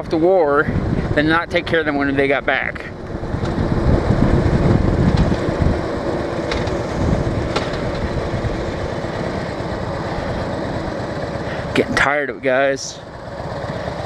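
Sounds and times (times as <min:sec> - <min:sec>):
wind rushing over microphone: 0:00.0 - 0:14.0
motorcycle engine running: 0:00.5 - 0:14.0.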